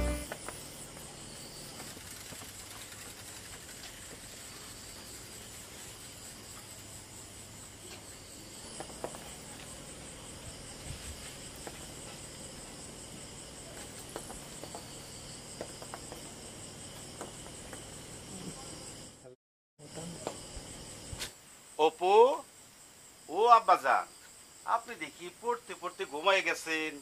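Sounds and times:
crickets chirring: 0:00.0 - 0:27.0.

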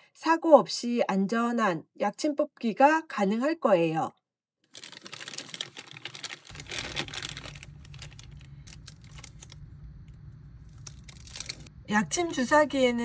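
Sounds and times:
plastic packaging crinkling: 0:04.7 - 0:11.7
low hum: 0:06.5 - 0:13.0.

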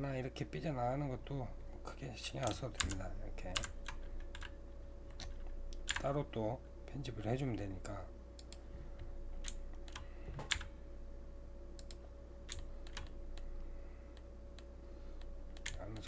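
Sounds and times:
faint steady hum: 0:00.0 - 0:16.0
computer keyboard key presses: 0:09.4 - 0:10.7, 0:15.5 - 0:16.0.

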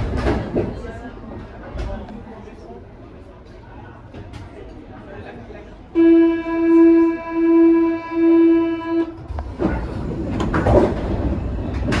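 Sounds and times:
train doors closing clunk and rattle: 0:09.0 - 0:12.0.

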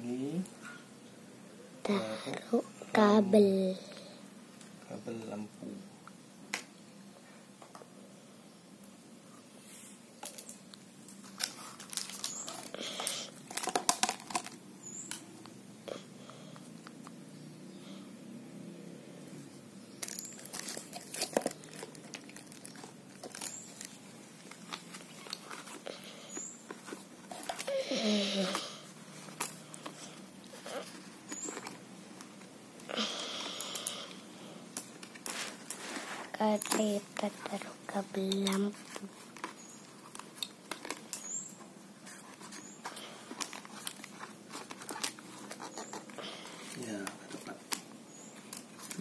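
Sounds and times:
plastic tape crinkling: 0:10.2 - 0:15.2, 0:20.0 - 0:49.0.

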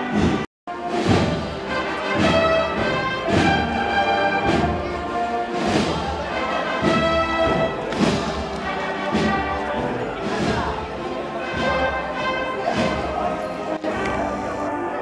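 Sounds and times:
band playing slow march: 0:00.0 - 0:15.0.

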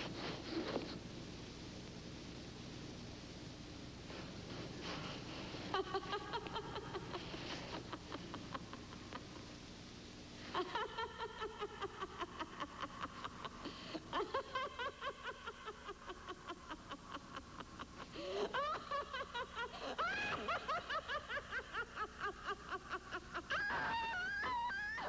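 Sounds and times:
person cackling laughter: 0:05.7 - 0:09.4, 0:10.5 - 0:25.0.

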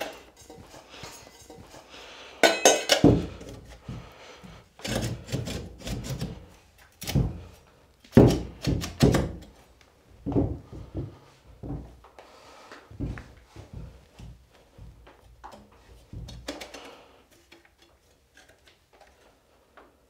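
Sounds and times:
metal pipe knocking and scraping: 0:00.0 - 0:04.0.

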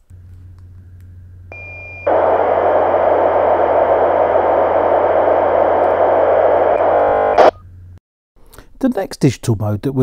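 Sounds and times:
digital radio transmission noise: 0:02.1 - 0:07.5.

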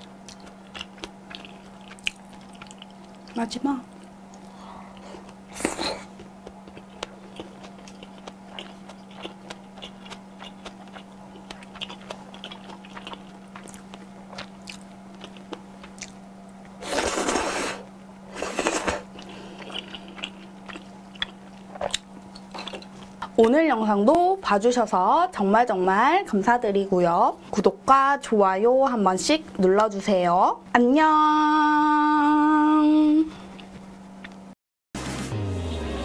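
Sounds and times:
wet chewing clicks: 0:00.2 - 0:16.2, 0:18.7 - 0:24.2
noodle slurping: 0:16.8 - 0:19.1.

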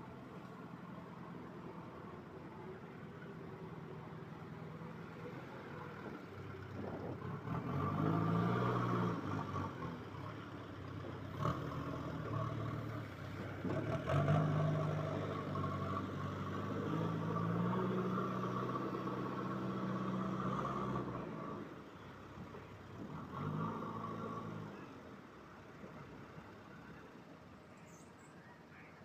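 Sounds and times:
diesel engine revving: 0:04.7 - 0:25.1.

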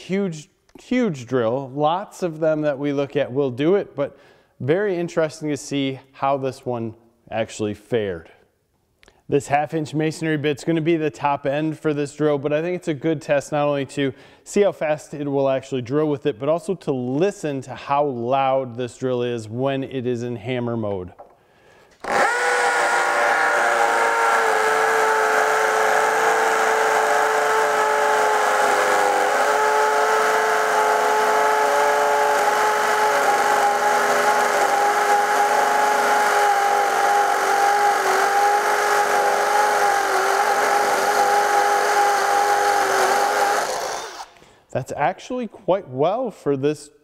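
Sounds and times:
hammer drill boring into masonry: 0:22.0 - 0:44.4.

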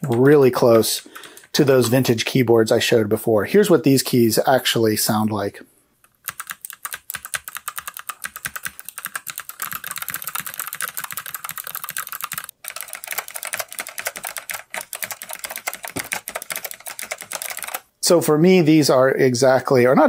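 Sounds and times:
mechanical keyboard typing: 0:06.2 - 0:17.9.

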